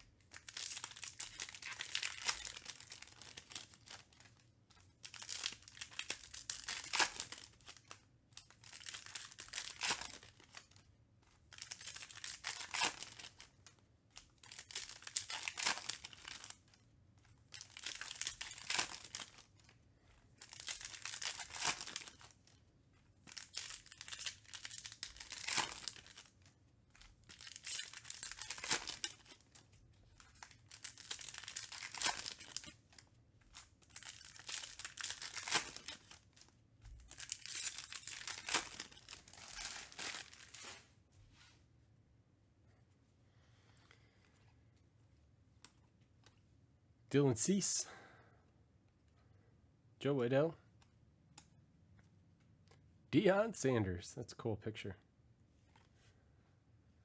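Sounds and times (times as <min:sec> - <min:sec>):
foil wrappers crinkling and tearing: 0:00.0 - 0:10.9, 0:11.5 - 0:16.8, 0:17.4 - 0:19.7, 0:20.4 - 0:22.6, 0:23.2 - 0:40.9.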